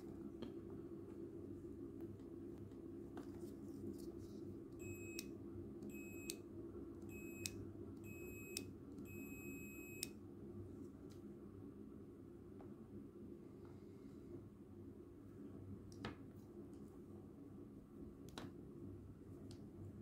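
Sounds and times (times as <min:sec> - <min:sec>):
multimeter continuity beep: 0:04.8 - 0:06.4, 0:07.0 - 0:10.2.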